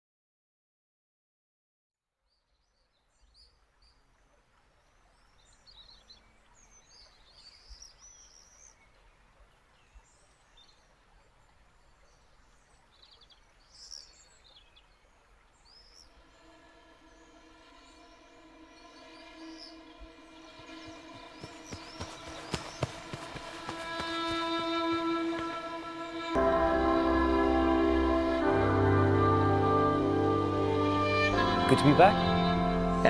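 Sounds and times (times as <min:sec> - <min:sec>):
low hiss: 0:02.7 - 0:33.0
bird chirps and calls: 0:17.1 - 0:24.8.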